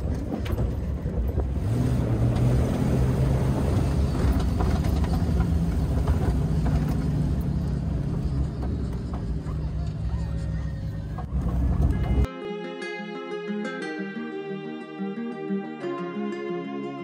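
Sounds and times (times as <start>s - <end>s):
vehicle engine running: 0.0s - 12.3s.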